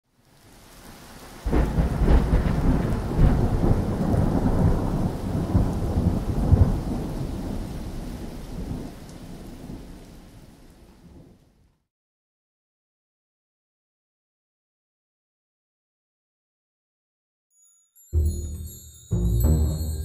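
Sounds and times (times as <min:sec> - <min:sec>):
thunder rumbling: 0:01.5 - 0:10.0.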